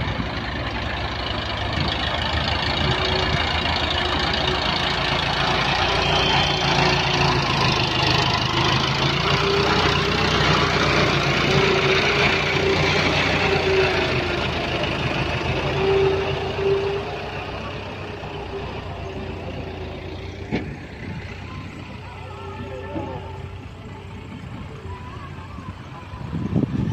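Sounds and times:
tractor diesel engine running: 0:00.0 - 0:26.9.

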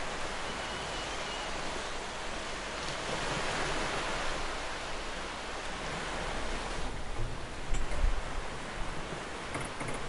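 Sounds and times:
water splashing along a hull: 0:00.0 - 0:10.0
wind hiss: 0:00.0 - 0:10.0.

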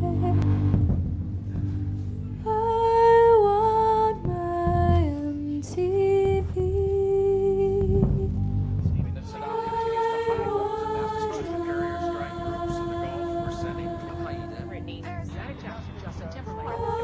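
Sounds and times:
woman singing: 0:00.0 - 0:00.6, 0:02.4 - 0:08.4, 0:09.3 - 0:14.6, 0:16.4 - 0:17.0
low accompaniment: 0:00.0 - 0:17.0.

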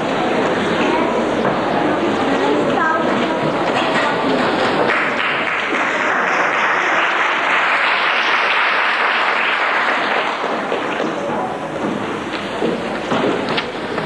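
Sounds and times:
audience applauding: 0:04.2 - 0:14.0.

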